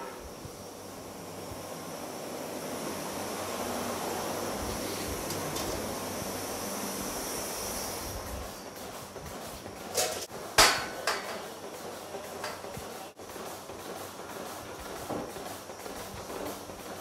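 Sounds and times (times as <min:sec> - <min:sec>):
background hiss: 0:00.0 - 0:10.3.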